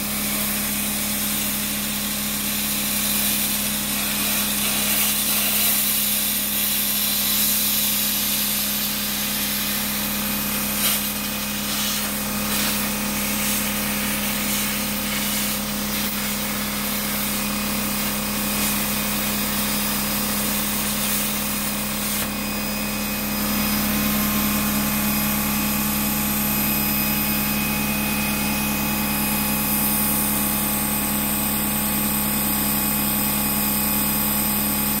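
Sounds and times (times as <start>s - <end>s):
plasma arc hissing: 2.5s - 22.4s.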